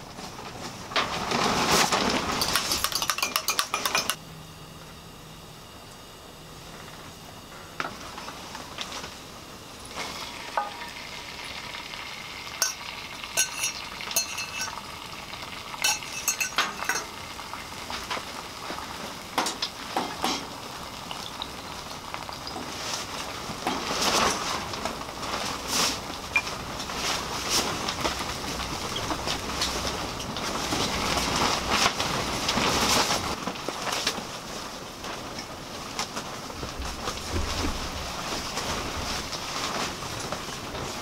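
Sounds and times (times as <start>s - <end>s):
eggs sizzling in frying pan: 2.4s - 4.2s, 9.6s - 25.2s.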